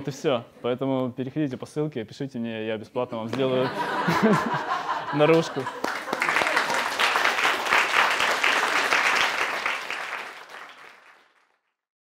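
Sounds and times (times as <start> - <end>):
audience applauding: 4.0 - 11.7.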